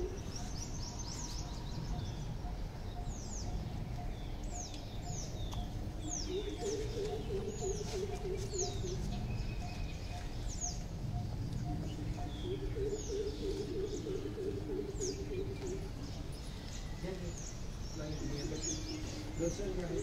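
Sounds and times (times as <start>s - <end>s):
birds chirping: 0.0s - 20.0s
low background rumble: 0.0s - 20.0s.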